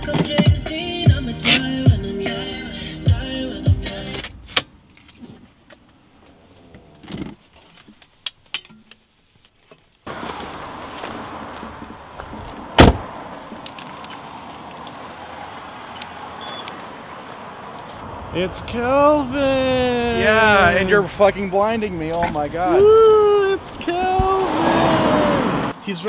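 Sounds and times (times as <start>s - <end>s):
outside air noise: 4.2s - 25.9s
car door opening: 11.1s - 14.2s
car door slamming: 12.3s - 13.2s
car door clicks and knocks: 12.8s - 13.1s.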